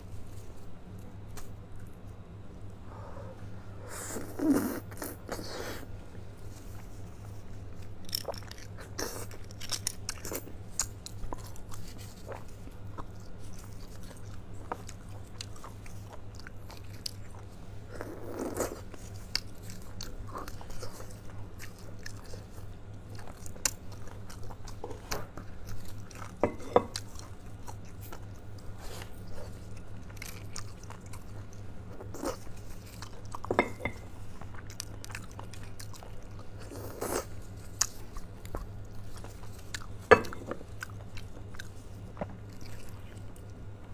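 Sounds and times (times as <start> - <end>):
steady low hum: 0.0 - 43.9
chewing and biting: 7.6 - 43.6.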